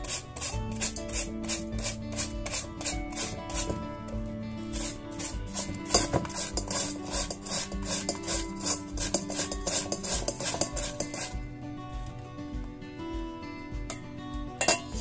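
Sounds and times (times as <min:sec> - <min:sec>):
vegetable rasping on a grater: 0:00.0 - 0:03.8, 0:04.7 - 0:11.4
background music: 0:00.0 - 0:15.0.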